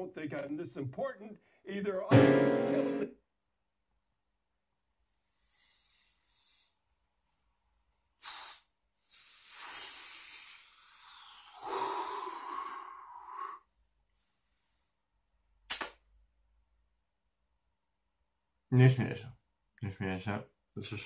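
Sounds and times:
sharp click: 15.7 - 16.0.

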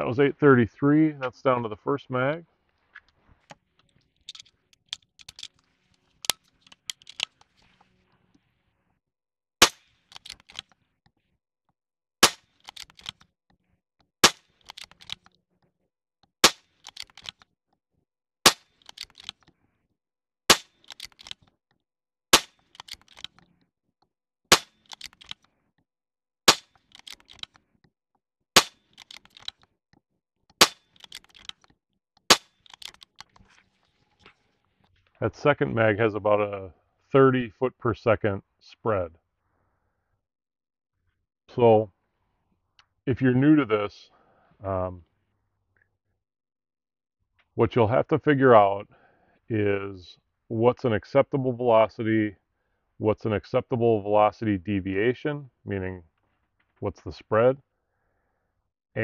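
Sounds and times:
rifle action clicking: 4.3 - 5.6, 6.2 - 7.6, 9.6 - 10.8, 12.2 - 13.3, 14.2 - 15.4, 16.4 - 17.4, 18.5 - 19.5, 20.5 - 21.5, 22.4 - 23.5, 24.5 - 25.4, 26.5 - 27.6, 28.6 - 29.6, 30.6 - 31.7, 32.3 - 33.5
air rifle shots: 9.6 - 10.6, 12.2 - 13.0, 14.2 - 15.1, 16.4 - 17.2, 20.5 - 21.0, 22.4 - 22.7, 24.5 - 25.0, 26.5 - 27.1, 28.6 - 29.1, 30.6 - 31.0.

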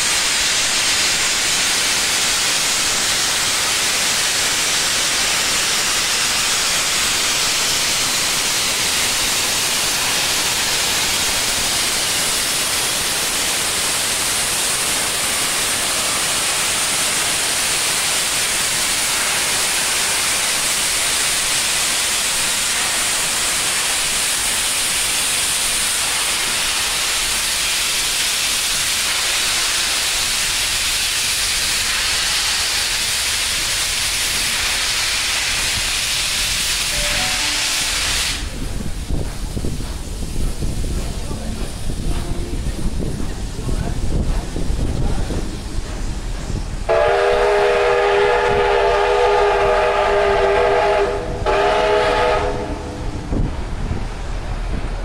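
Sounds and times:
steam locomotive venting steam: 0.0 - 55.0.

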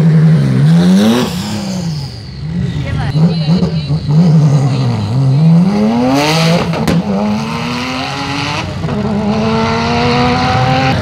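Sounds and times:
sports car accelerating hard: 3.0 - 11.0.

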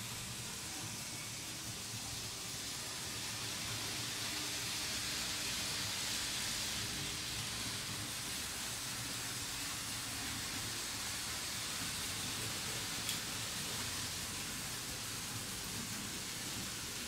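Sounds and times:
model trains rolling: 0.0 - 17.0.

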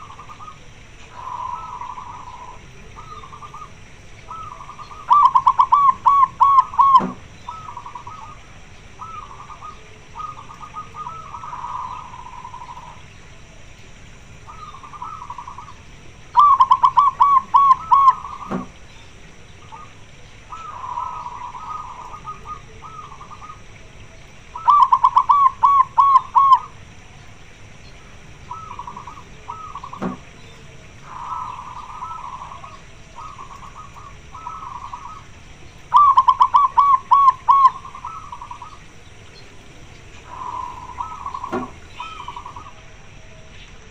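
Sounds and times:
dove rolling coo phrases: 0.0 - 43.9
soft dove coos: 0.0 - 43.9.

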